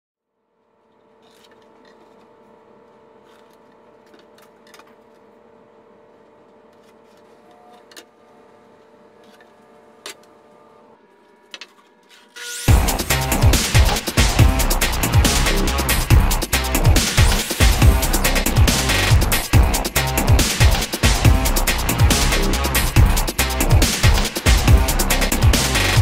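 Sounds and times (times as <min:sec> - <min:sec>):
loud electronic music: 0:12.6 - 0:26.0.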